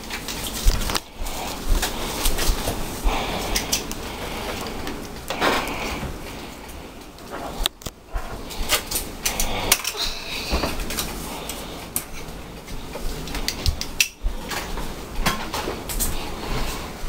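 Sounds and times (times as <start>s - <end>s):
utensils clinking against dishes: 8.2s - 12.4s.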